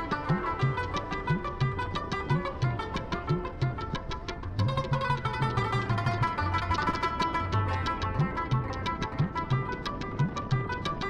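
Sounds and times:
plucked string music with beat: 0:00.0 - 0:11.0.

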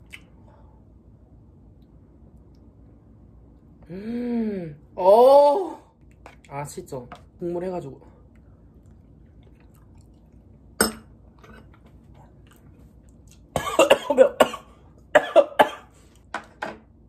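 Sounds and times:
man coughing: 0:13.6 - 0:15.9.

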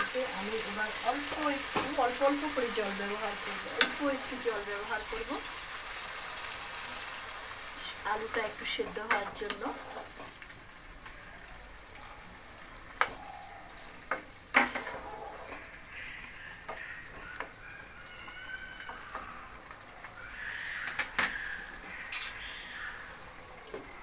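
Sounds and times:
curry simmering and sizzling: 0:00.0 - 0:24.0
wooden spatula stirring: 0:08.3 - 0:10.4.

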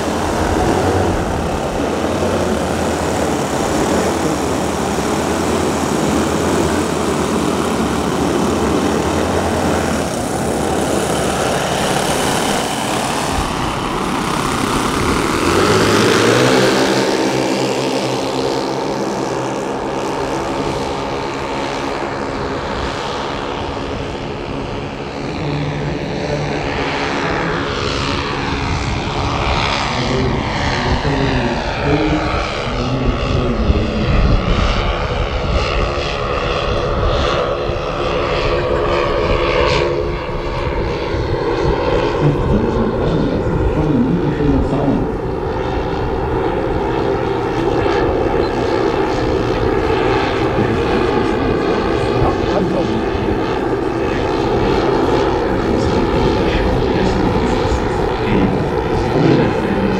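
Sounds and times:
model airplane engines droning: 0:00.0 - 0:59.9.

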